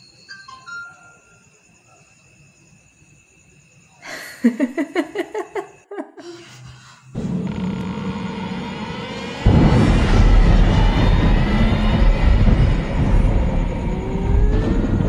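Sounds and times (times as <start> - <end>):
person laughing: 4.1 - 6.4
rushing drone with low hum: 7.1 - 15.0.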